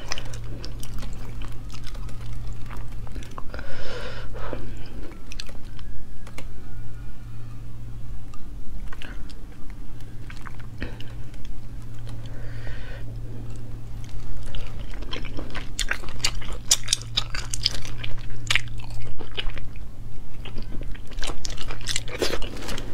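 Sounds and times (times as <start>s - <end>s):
wet chewing and mouth clicks: 0.0s - 3.5s, 13.5s - 22.8s
steady low hum: 0.0s - 22.9s.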